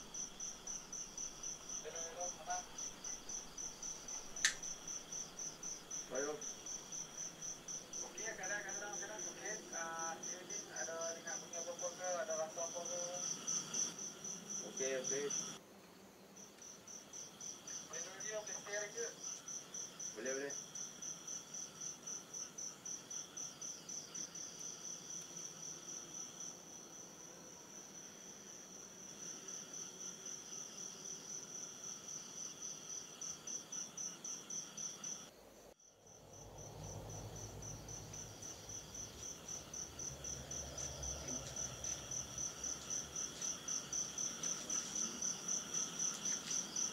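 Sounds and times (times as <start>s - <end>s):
cricket chirping: 0.0s - 46.9s.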